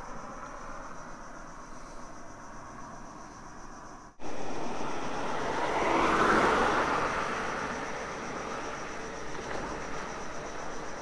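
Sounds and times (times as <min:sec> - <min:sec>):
car driving past: 0:04.2 - 0:11.0.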